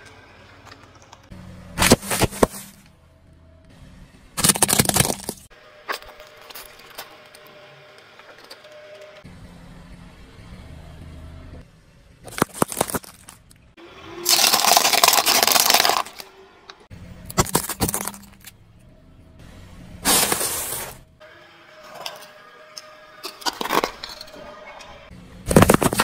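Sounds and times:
plastic cups crunching under tyre: 4.4 - 7.1, 12.3 - 13.5, 14.2 - 16.3, 17.3 - 18.4, 25.5 - 26.0
wire strainer cracking under tyre: 14.3 - 16.3.

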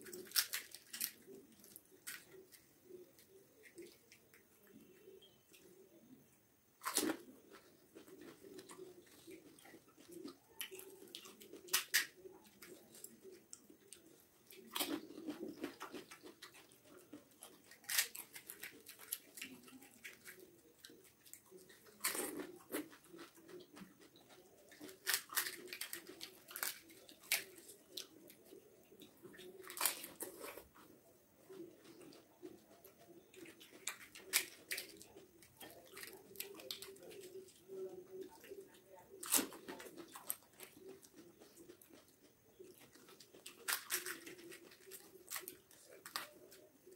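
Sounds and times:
wet chewing: 0.0 - 4.8, 6.8 - 46.9
crisp shells crunching: 43.1 - 46.7.

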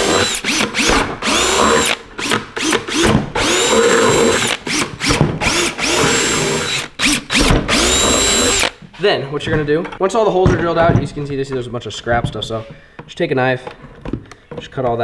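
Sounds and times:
drill whining through plastic: 0.0 - 8.8.

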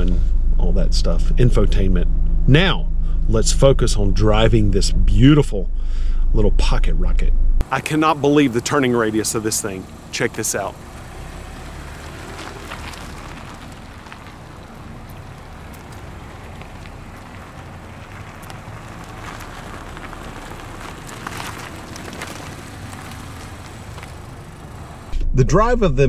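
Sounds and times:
car engine at low revs: 0.0 - 26.0
tyre noise on asphalt: 7.6 - 25.3.

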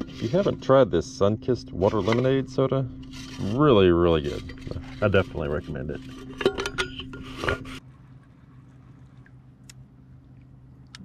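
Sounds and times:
objects knocking and rubbing: 0.0 - 1.0, 1.8 - 7.8
steady low hum: 0.0 - 11.0.

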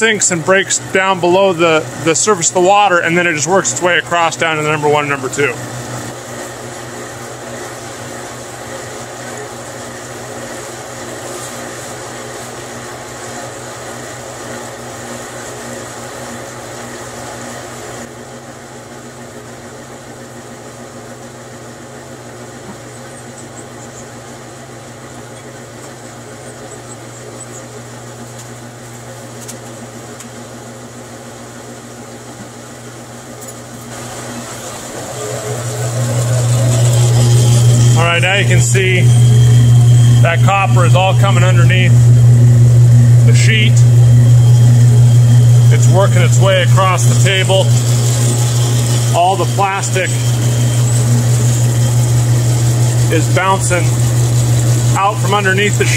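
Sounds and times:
shaker table machine hum: 33.8 - 55.9.

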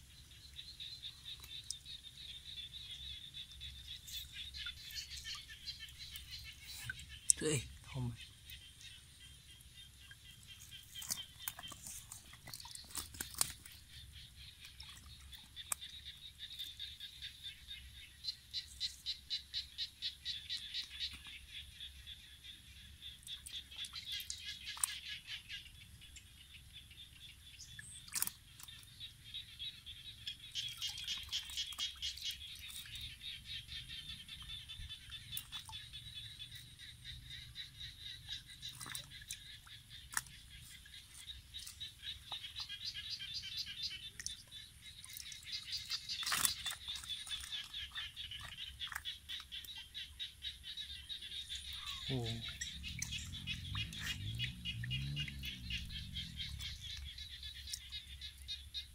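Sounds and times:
frogs calling: 0.0 - 58.9
faint low rumble: 51.1 - 58.9.

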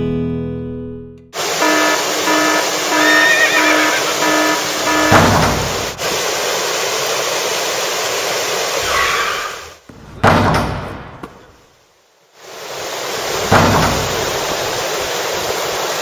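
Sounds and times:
river rapids rushing: 1.4 - 9.8.

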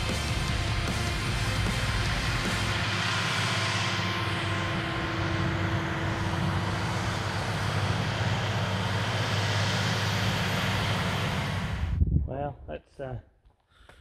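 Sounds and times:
tractor engine drone: 0.0 - 12.1.

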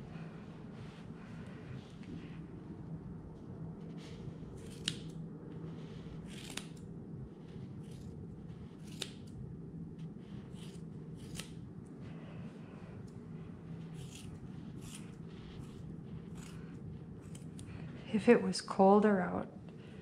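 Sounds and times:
scissors snipping wool: 4.6 - 5.2, 6.2 - 6.8, 7.8 - 9.4, 10.5 - 11.6, 13.9 - 17.7.

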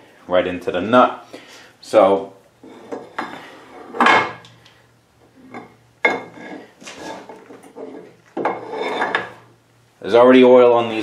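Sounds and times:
metal-on-metal clanks and scrapes: 2.6 - 4.5, 5.4 - 9.5.

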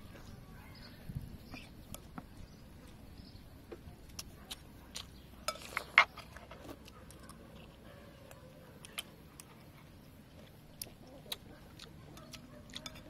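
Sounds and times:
spoons clinking on ceramic bowl: 12.8 - 13.0.

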